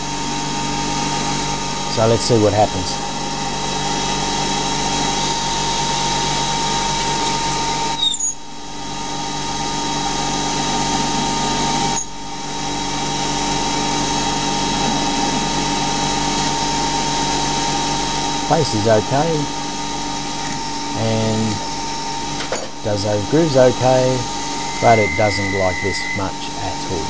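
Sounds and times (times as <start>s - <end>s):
lathe machine whine: 0.0s - 27.0s
high falling squeal: 7.0s - 8.4s, 24.3s - 27.0s.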